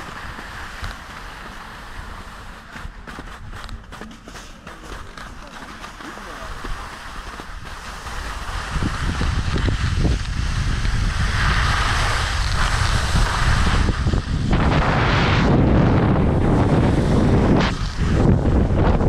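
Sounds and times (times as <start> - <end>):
skis sliding over snow: 0.0 - 19.0
wind buffeting microphone: 7.5 - 19.0.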